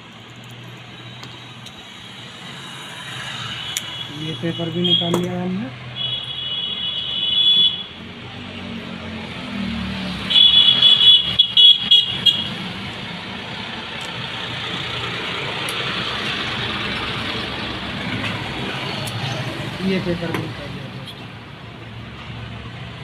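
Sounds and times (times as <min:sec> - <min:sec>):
street traffic rumble: 0:00.0 - 0:23.0
high-pitched car horn: 0:06.0 - 0:08.0, 0:10.3 - 0:12.6.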